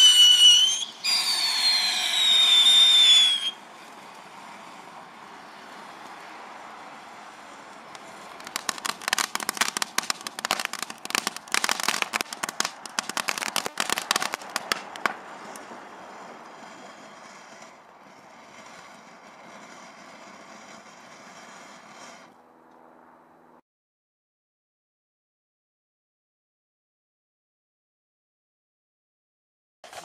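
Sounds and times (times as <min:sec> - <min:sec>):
fireworks crackling: 0:00.0 - 0:03.6, 0:07.9 - 0:15.7
fireworks fizzing hiss: 0:00.0 - 0:03.6, 0:08.0 - 0:15.5.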